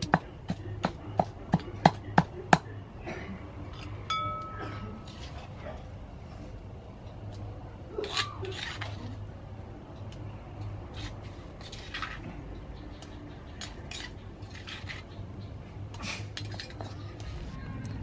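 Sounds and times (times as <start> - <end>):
spoon scraping stone mortar: 8.0 - 9.2, 10.9 - 12.3, 13.0 - 15.2.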